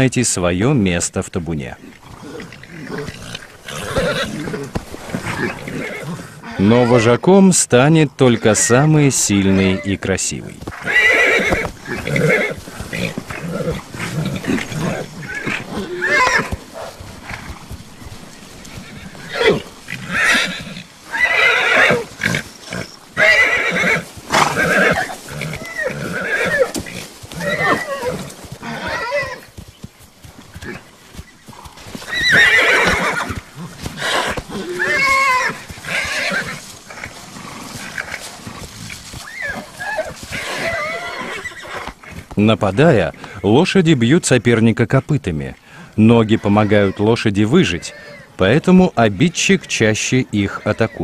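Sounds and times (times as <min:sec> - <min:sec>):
horses squealing: 0:01.6 - 0:44.6, 0:46.0 - 0:51.0
hoof knocks: 0:02.6 - 0:05.8, 0:10.2 - 0:20.7, 0:24.0 - 0:41.0.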